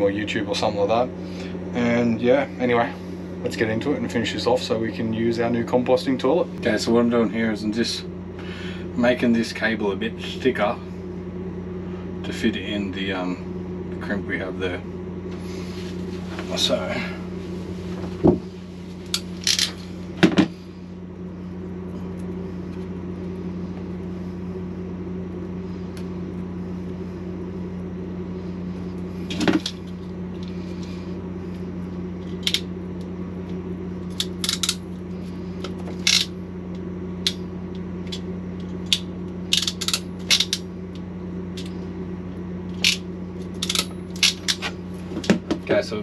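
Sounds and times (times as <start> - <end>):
steady low hum: 0.0 - 46.0
crimping tool metal clicks: 34.1 - 34.8, 38.1 - 40.6, 43.6 - 44.6.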